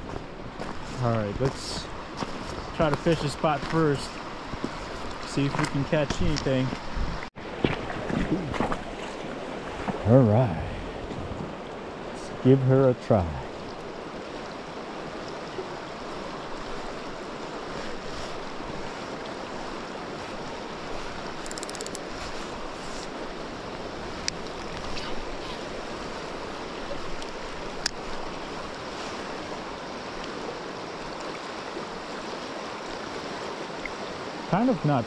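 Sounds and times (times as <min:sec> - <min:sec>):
fast-flowing river rushing: 0:08.8 - 0:35.0
sharp clicks: 0:21.4 - 0:22.0.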